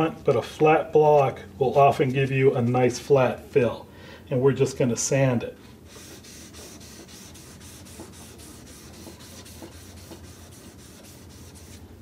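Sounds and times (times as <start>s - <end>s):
sandpaper scratching: 5.9s - 11.8s.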